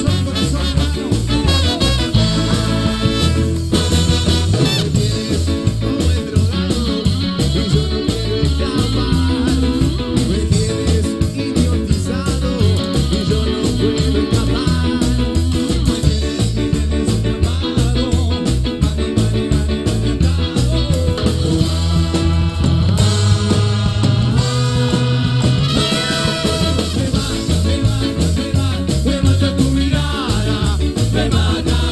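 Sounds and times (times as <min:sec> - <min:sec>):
person singing into a microphone: 0:00.0 - 0:03.3, 0:04.8 - 0:24.6, 0:25.8 - 0:31.9
live band playing dance music: 0:00.0 - 0:31.9.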